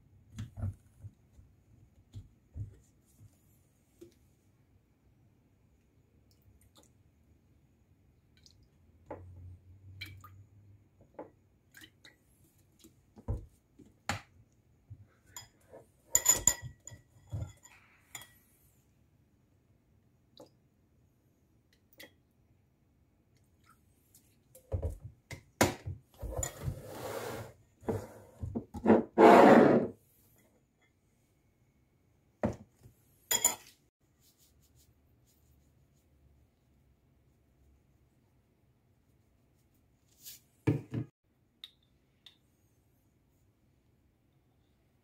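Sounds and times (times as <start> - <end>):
spoon clinking on bowl: 33.3 - 33.7.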